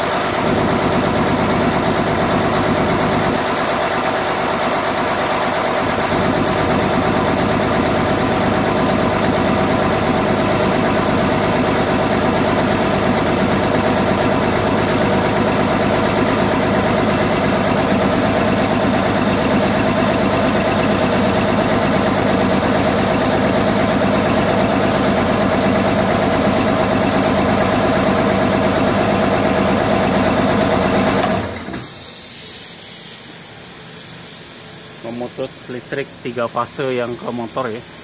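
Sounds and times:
air compressor droning: 0.0s - 38.0s
air hissing out: 31.5s - 38.0s.

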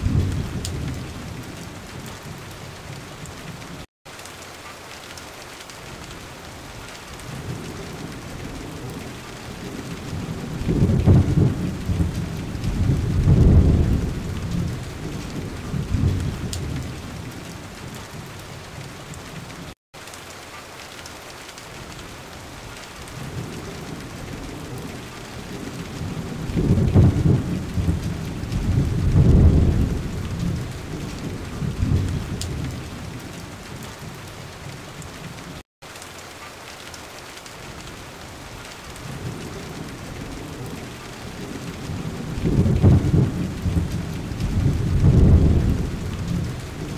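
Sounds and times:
low rolls of thunder: 0.0s - 3.0s, 7.3s - 18.3s, 23.2s - 34.8s, 39.0s - 46.9s
steady rain hiss: 0.0s - 46.9s.

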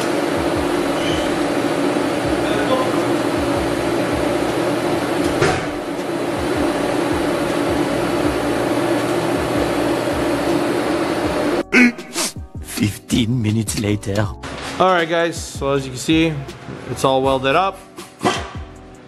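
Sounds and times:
welding arc buzzing and hissing: 0.0s - 12.4s.

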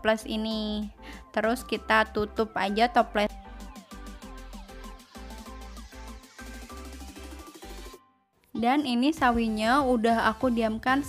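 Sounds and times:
electronic music with steady beat: 1.6s - 8.0s, 9.2s - 11.0s.

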